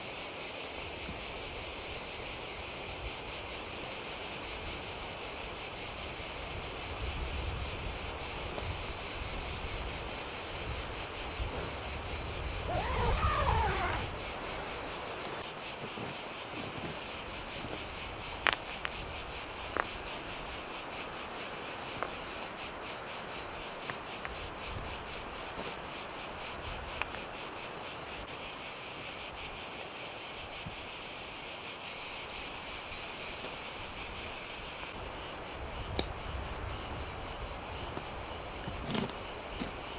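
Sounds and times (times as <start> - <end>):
insects buzzing: 0.0 - 39.9
warbling call: 12.7 - 14.7.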